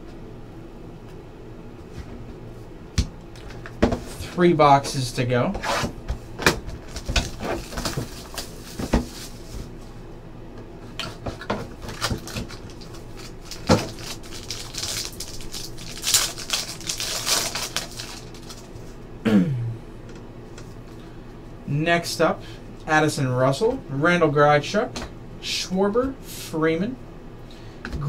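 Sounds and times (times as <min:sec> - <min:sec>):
foil wrapper crinkling: 0:06.8 - 0:09.6, 0:11.7 - 0:19.0.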